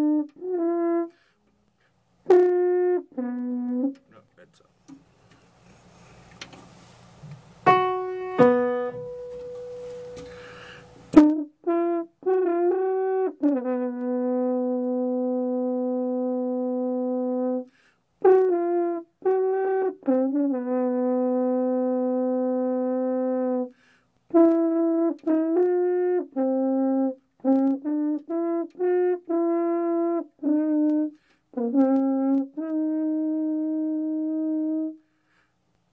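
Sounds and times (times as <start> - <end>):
french horn playing: 0.0 - 1.4, 2.2 - 4.2, 7.7 - 35.1
piano notes: 7.6 - 11.3.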